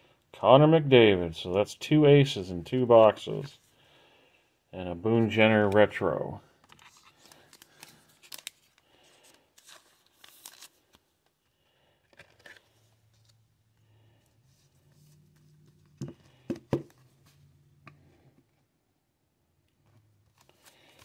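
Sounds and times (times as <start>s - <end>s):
plastic sleeve crinkling: 6.6s - 11.0s.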